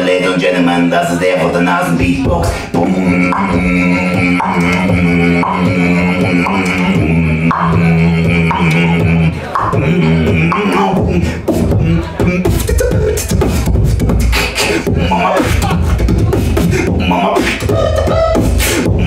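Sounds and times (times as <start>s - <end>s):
nasal hummed drone: 2.8s - 11.2s.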